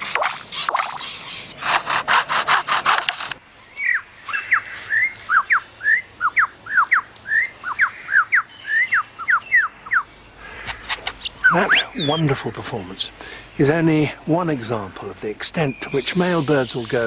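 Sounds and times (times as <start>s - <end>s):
bird rasping chainsaw imitation: 0.0s - 3.4s
whistled bird notes: 11.2s - 12.4s.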